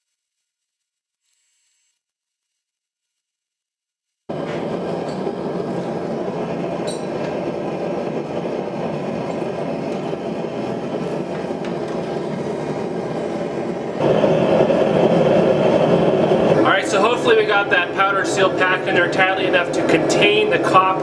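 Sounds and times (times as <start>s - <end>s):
gas burner roaring: 4.3s - 21.0s.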